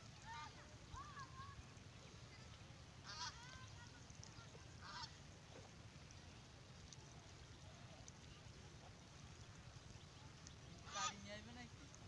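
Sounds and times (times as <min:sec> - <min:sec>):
ducks calling: 0:03.0 - 0:03.5, 0:04.8 - 0:05.2, 0:10.8 - 0:11.3.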